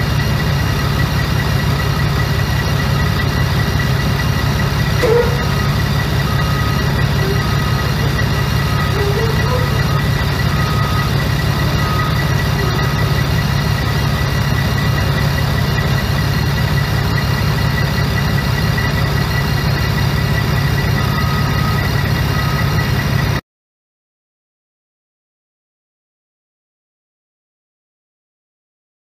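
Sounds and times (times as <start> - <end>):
heavy diesel engines running: 0.0 - 23.4
short beeps: 5.0 - 13.5.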